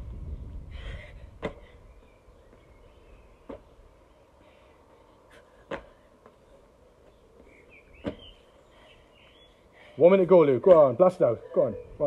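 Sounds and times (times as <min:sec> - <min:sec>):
shoes thudding on paving: 0:01.4 - 0:01.7, 0:03.4 - 0:03.9, 0:05.6 - 0:08.5, 0:10.5 - 0:11.1.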